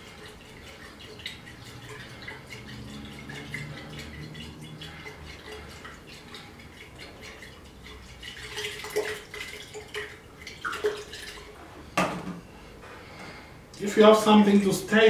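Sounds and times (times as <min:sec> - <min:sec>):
liquid sloshing in glass flask: 0:00.0 - 0:12.0.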